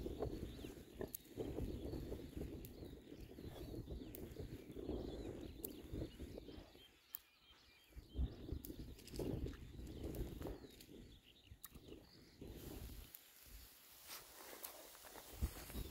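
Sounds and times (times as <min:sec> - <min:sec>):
pigs rooting in grass: 0:00.0 - 0:06.2
faint bird chirps: 0:00.0 - 0:15.9.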